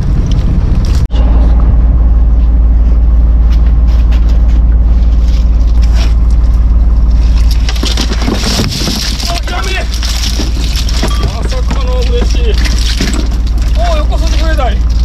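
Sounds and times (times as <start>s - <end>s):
boat engine rumbling: 0.0s - 15.0s.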